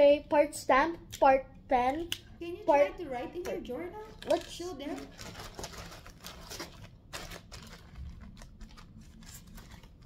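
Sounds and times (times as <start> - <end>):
plastic bag crinkling: 4.0 - 10.0.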